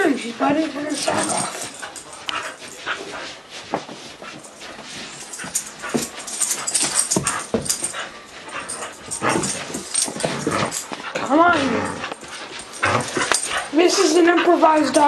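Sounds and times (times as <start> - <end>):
scuffles and knocks: 0.4 - 11.5.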